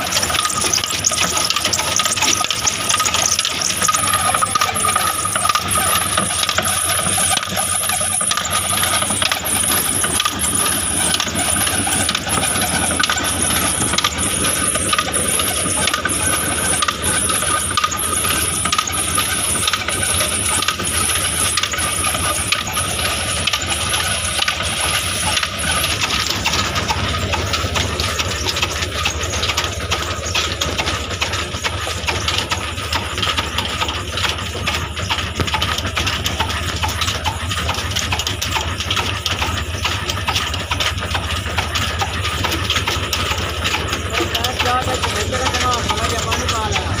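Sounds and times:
steady high tone: 0:00.0 - 0:32.1
diesel engine running: 0:00.0 - 0:47.0.

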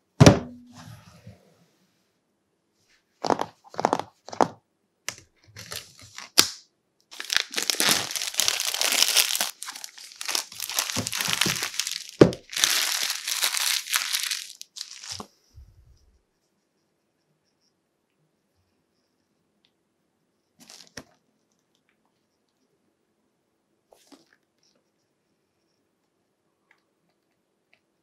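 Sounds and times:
plastic shrink-wrap crinkling: 0:05.6 - 0:06.5, 0:07.1 - 0:15.3, 0:20.6 - 0:21.0
plastic shrink-wrap scratching: 0:07.1 - 0:15.2.

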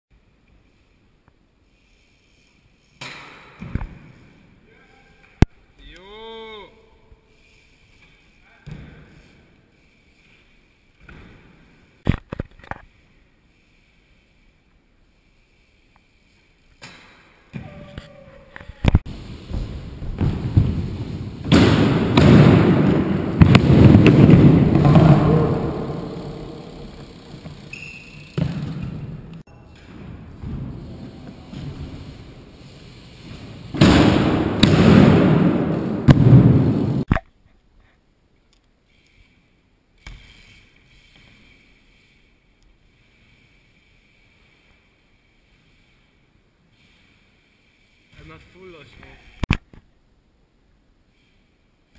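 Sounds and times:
bike tyres rolling on wooden ramps: 0:12.9 - 0:37.0.

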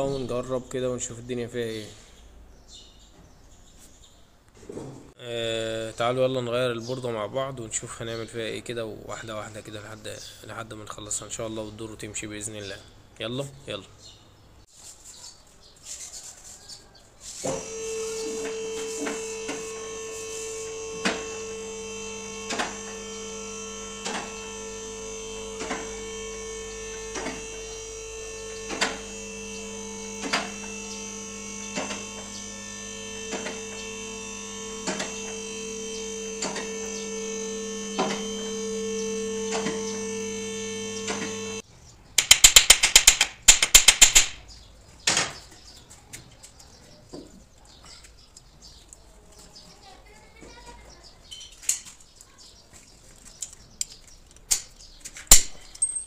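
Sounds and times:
electric car lift motor running: 0:17.5 - 0:41.6.

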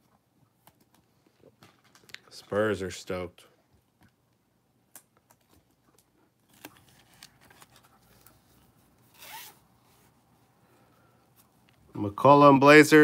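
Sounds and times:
sliding rub with squeak: 0:09.1 - 0:09.6.

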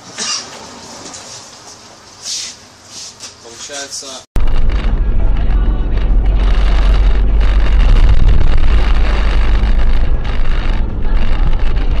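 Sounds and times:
car engine and tyre noise: 0:04.4 - 0:12.0.

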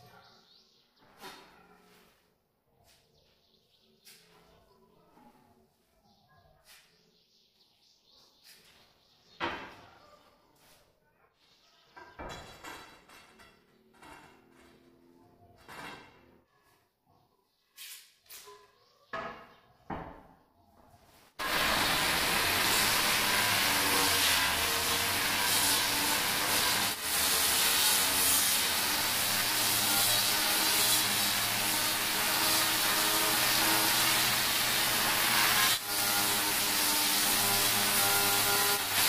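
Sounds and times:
angle grinder grinding stone: 0:21.4 - 0:39.0.

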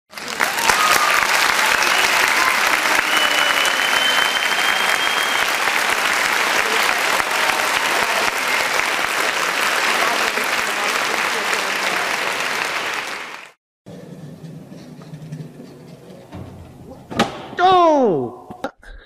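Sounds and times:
crowd applauding: 0:00.1 - 0:13.6
long thin whistle: 0:02.9 - 0:05.6.

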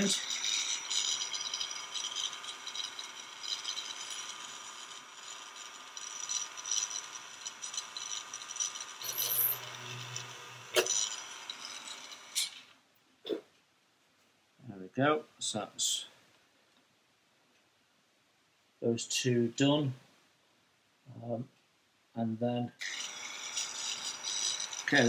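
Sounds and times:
rotary tool whining: 0:00.0 - 0:13.4, 0:22.8 - 0:25.0.

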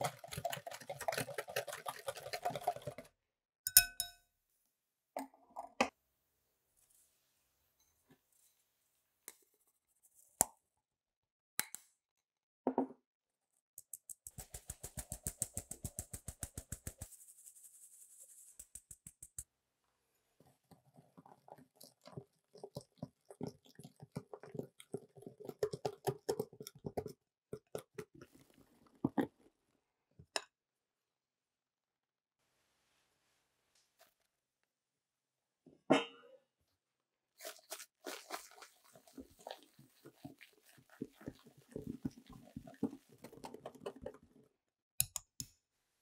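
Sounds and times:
whisk scraping glass bowl: 0:00.0 - 0:03.1, 0:37.4 - 0:44.4.

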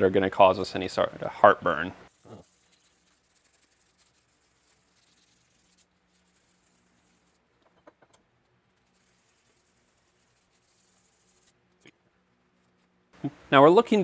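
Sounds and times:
sandpaper rasping on metal: 0:02.1 - 0:07.4, 0:08.7 - 0:11.6.

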